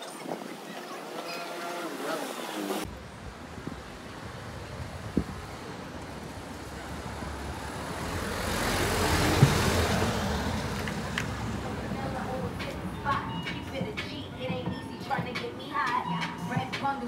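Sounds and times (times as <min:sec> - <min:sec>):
street traffic noise: 0:00.0 - 0:17.0
vehicle passing: 0:01.7 - 0:14.6.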